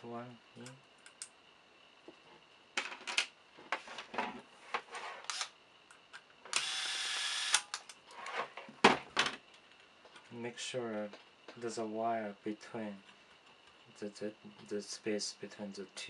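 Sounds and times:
electric screwdriver running: 6.6 - 7.7.

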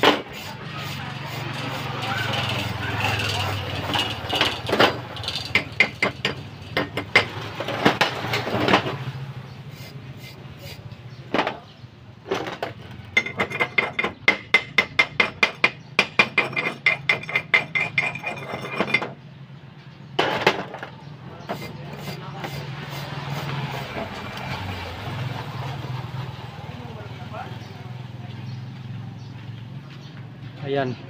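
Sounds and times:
chipping hammer tapping metal: 3.4 - 8.3, 13.0 - 19.1.

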